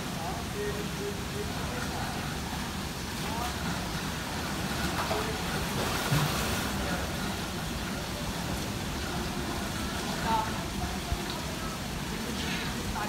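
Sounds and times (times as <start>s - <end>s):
outdoor background noise: 0.0s - 13.0s
water splashing in pool: 0.0s - 13.0s.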